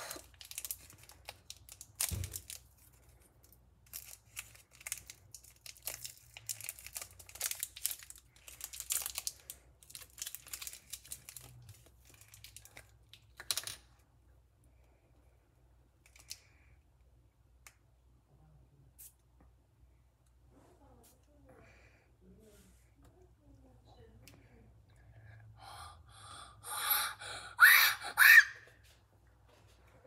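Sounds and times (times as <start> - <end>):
candy wrapper crinkling: 0.0 - 13.9, 16.0 - 16.6.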